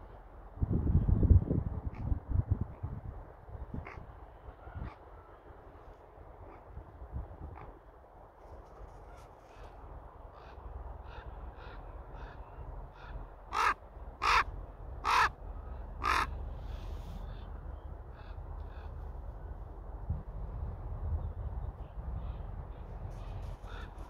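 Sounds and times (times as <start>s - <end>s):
raven calling: 3.8s - 5.4s, 9.0s - 16.8s, 23.4s - 24.0s.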